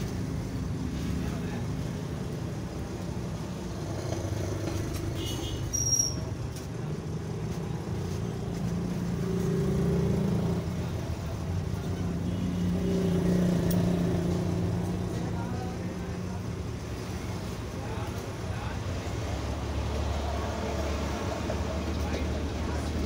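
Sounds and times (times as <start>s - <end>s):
road traffic engine rumble: 0.0s - 23.0s.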